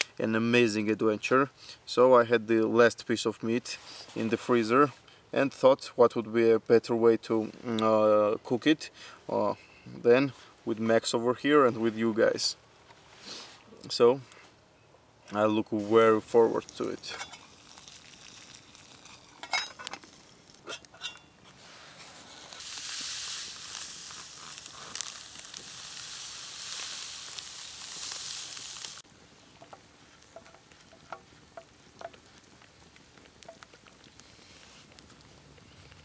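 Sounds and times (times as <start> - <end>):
fire crackles: 0.0 - 36.0
pot of water hissing: 16.0 - 36.0.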